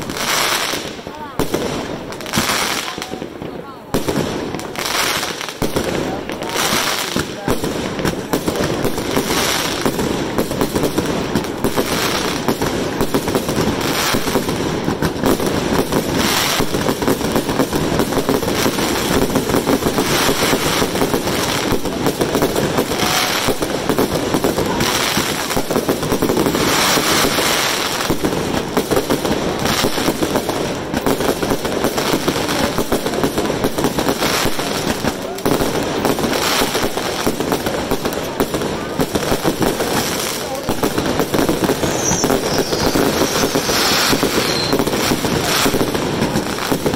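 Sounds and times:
fireworks bangs and crackling: 0.0s - 46.9s.

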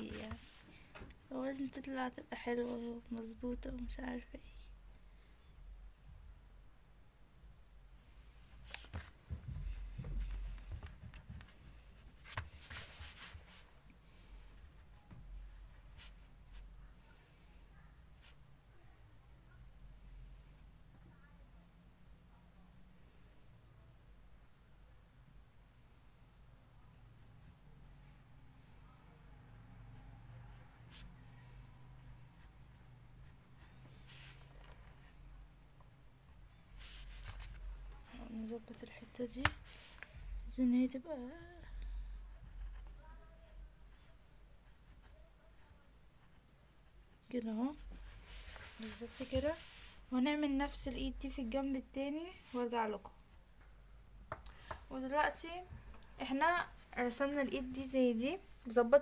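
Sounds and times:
pencil scratching on paper: 0.0s - 16.8s, 26.8s - 35.2s, 35.8s - 53.6s.

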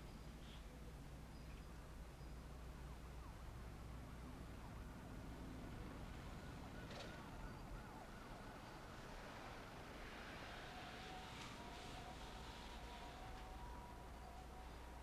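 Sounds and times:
soft hiss: 8.1s - 15.0s.

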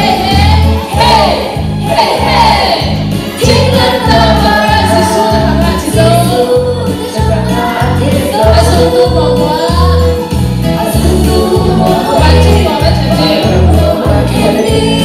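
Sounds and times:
backing track with bass beat: 0.0s - 15.0s
woman singing: 3.4s - 15.0s.

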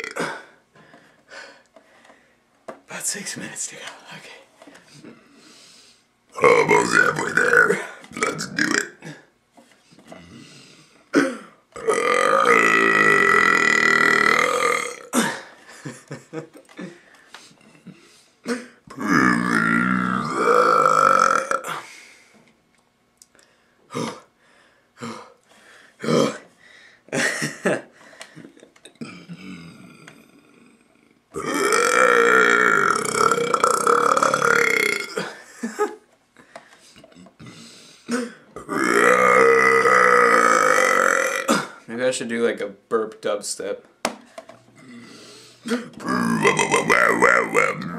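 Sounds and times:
man burping: 0.0s - 0.6s, 6.4s - 9.3s, 11.1s - 15.6s, 17.8s - 21.9s, 23.9s - 24.3s, 25.0s - 25.4s, 26.0s - 26.5s, 28.8s - 36.0s, 38.1s - 41.9s, 44.7s - 47.9s.

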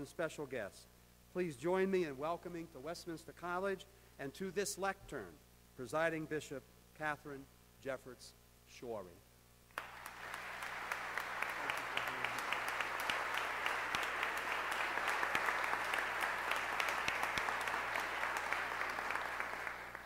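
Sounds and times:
audience applauding: 9.8s - 20.0s.

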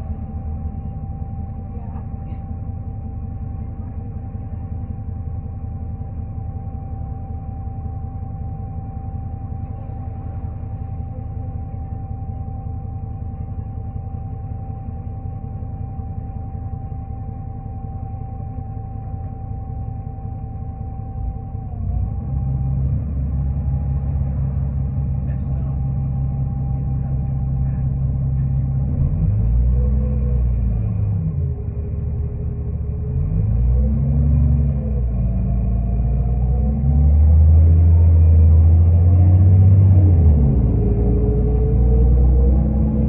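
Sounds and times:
thin steady whine: 0.0s - 29.0s
bus engine and road rumble: 0.0s - 43.0s.

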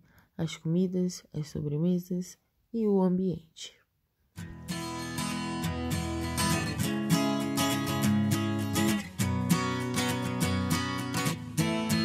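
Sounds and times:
acoustic guitar strumming: 4.4s - 12.0s.

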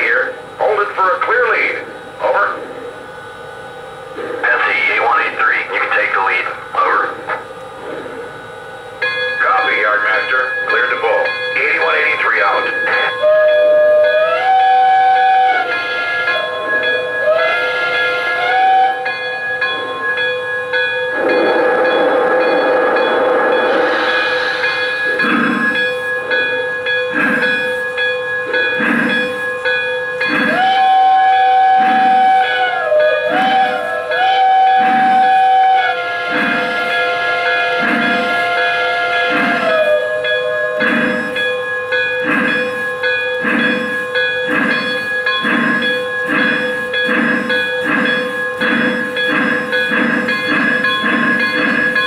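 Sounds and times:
steady background tones: 0.0s - 14.3s, 14.9s - 52.0s
steam locomotive exhaust chuffs: 0.0s - 52.0s
train whistle: 12.9s - 20.0s, 21.1s - 27.3s, 30.2s - 43.6s
steady tone: 18.9s - 32.4s.

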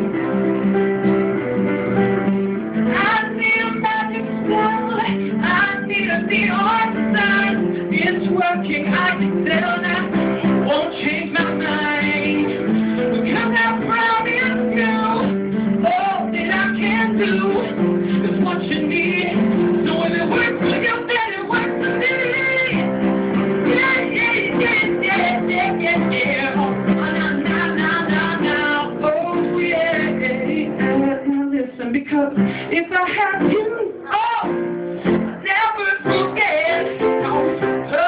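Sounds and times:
piano chords: 0.0s - 38.0s.

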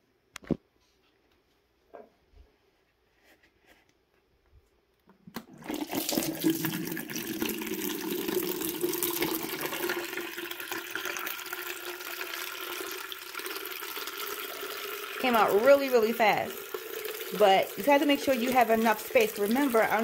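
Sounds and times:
water stream into plastic pitcher: 5.3s - 20.0s.

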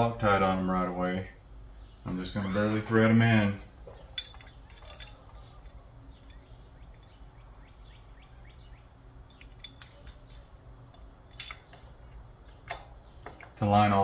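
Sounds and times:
steady low hum: 0.0s - 14.0s
metallic clicks and scrapes: 4.0s - 7.2s, 9.2s - 13.6s.

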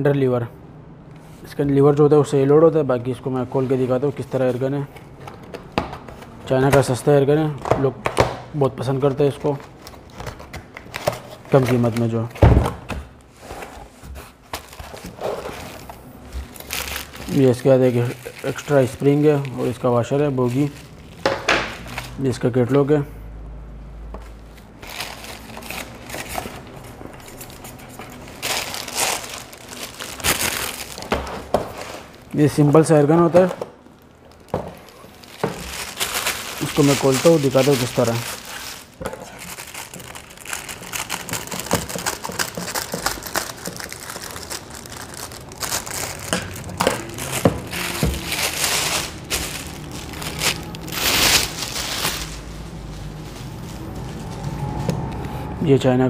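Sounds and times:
plastic wrapping crinkling: 13.2s - 22.4s, 24.2s - 55.1s.

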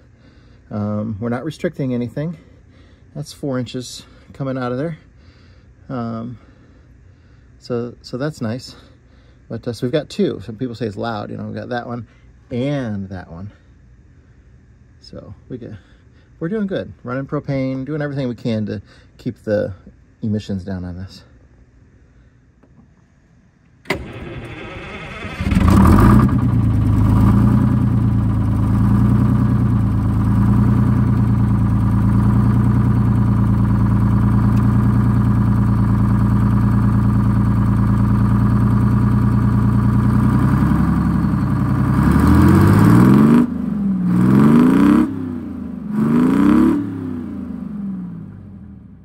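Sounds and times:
diesel engine cranking: 23.8s - 46.8s
diesel engine idling and revving: 24.0s - 49.0s.

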